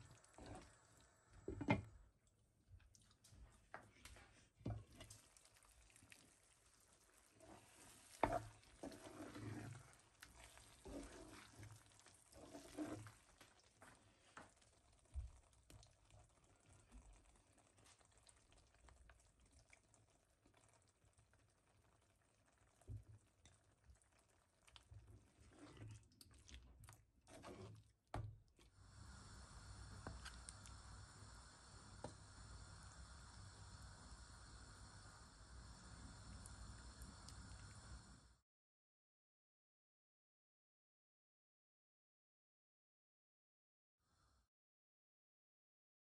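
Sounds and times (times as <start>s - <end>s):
curry bubbling: 0.0s - 38.3s
wooden spatula stirring curry: 2.8s - 28.6s, 29.9s - 30.6s.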